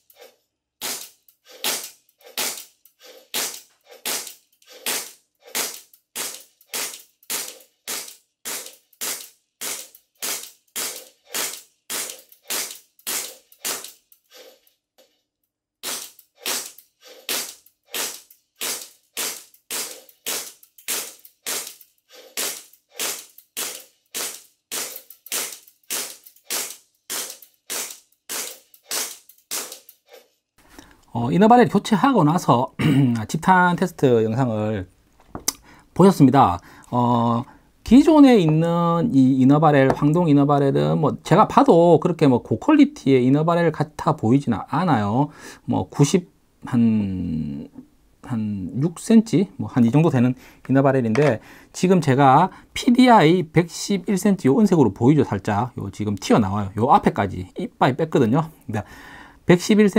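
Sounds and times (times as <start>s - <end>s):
airsoft pistol shots: 0.8s - 2.7s, 3.3s - 14.0s, 15.8s - 21.8s, 22.4s - 29.8s.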